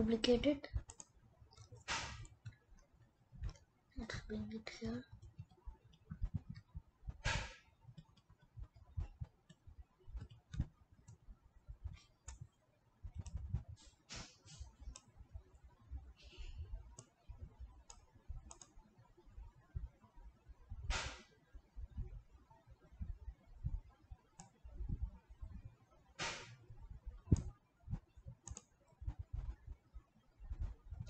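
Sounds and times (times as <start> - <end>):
computer mouse clicks: 0.8 - 2.6, 5.1 - 11.2, 11.8 - 12.5, 13.1 - 14.2, 14.8 - 15.1, 16.9 - 18.8, 24.4 - 24.6, 27.3 - 29.6
soft low thumps: 3.4 - 14.0, 20.6 - 21.0, 21.7 - 24.0, 24.7 - 25.8, 26.6 - 31.0.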